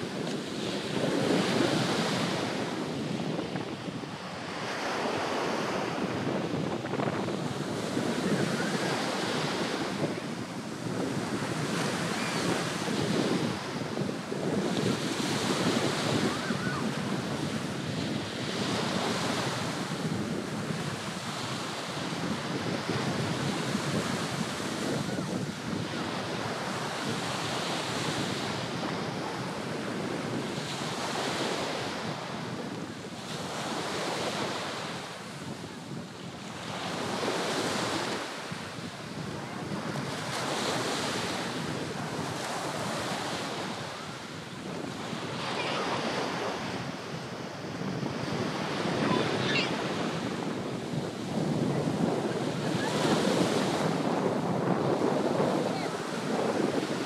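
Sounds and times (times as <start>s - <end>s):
small surf breaking on beach: 0.0s - 57.0s
wind buffeting microphone: 0.0s - 57.0s.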